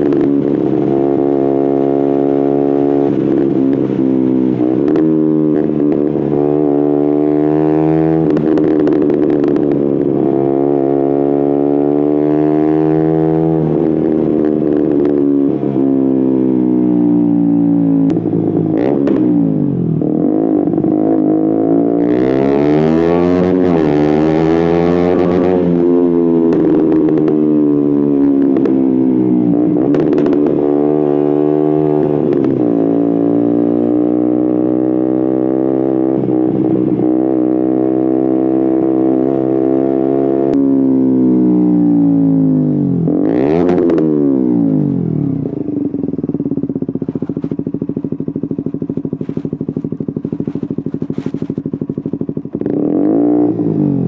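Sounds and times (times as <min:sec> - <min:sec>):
motorcycle engine riding: 0:00.0 - 0:54.0
engine crackling: 0:44.7 - 0:54.0.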